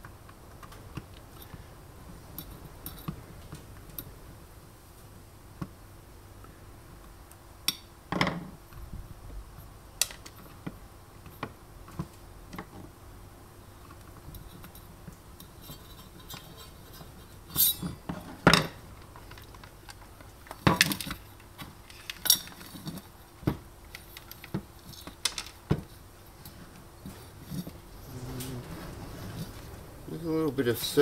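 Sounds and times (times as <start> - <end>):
metal and plastic parts clacking: 15.4 - 27.8.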